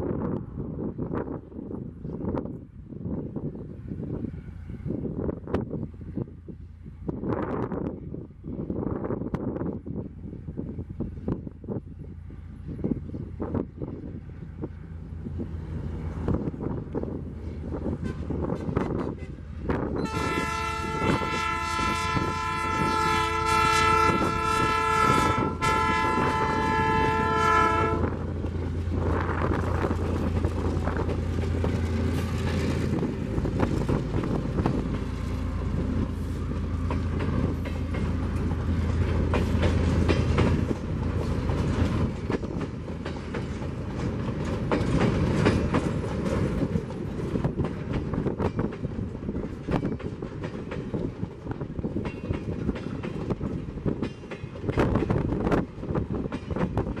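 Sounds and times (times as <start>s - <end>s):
diesel locomotive passing: 0.0s - 57.0s
locomotive horn blast: 18.0s - 28.3s
wheels clattering over rail joints: 28.2s - 57.0s.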